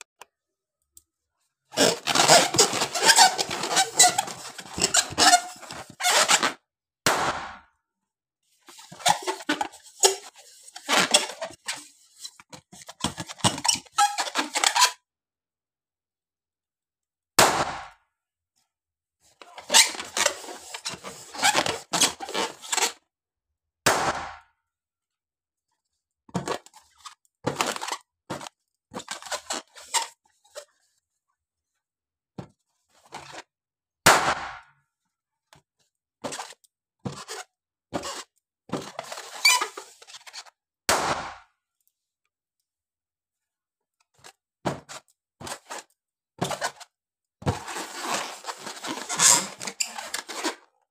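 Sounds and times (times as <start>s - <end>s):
rubbery squeaks of balloons: 1.7s - 6.6s, 8.7s - 15.0s, 19.4s - 23.1s, 26.4s - 30.7s, 36.2s - 40.6s, 44.9s - 50.7s.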